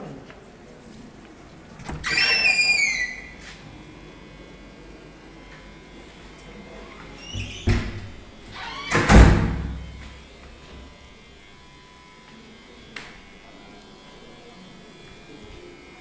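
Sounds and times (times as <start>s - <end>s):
door banging heavily: 7.3s - 8.2s, 8.8s - 9.8s.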